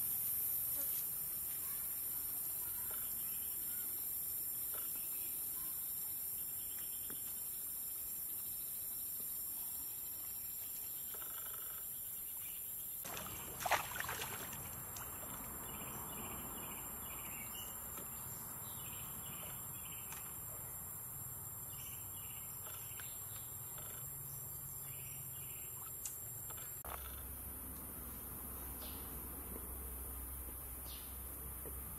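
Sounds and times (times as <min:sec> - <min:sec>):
high insect buzz: 0:00.0 - 0:02.0.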